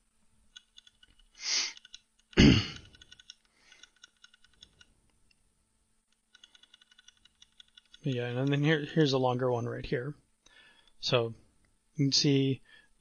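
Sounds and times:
keyboard keys clicking: 0:00.5 - 0:04.9, 0:06.1 - 0:08.7.

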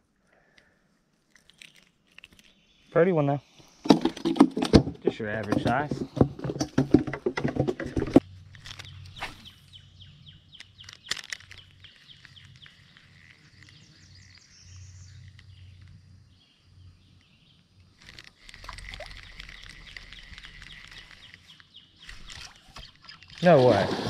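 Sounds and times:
knocks and rustling: 0:03.8 - 0:09.5
bird chirping: 0:08.6 - 0:17.7, 0:18.8 - 0:23.6.

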